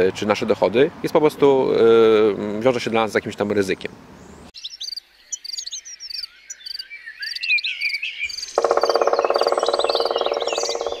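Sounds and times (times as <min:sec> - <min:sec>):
birds chirping: 0:00.0 - 0:11.0
high insect-like ticks: 0:08.6 - 0:11.0.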